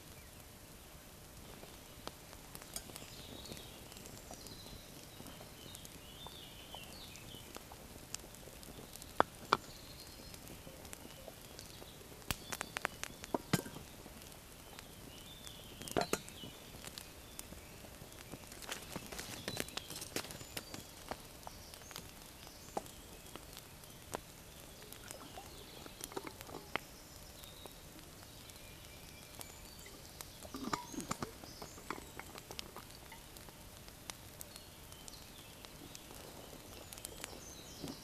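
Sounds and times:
faint bird chirps: 0.0s - 7.8s, 8.4s - 33.5s, 34.3s - 38.0s.

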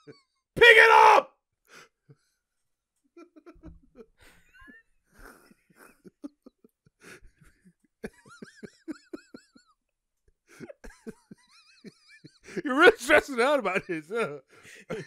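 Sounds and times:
people laughing: 3.2s - 7.2s.

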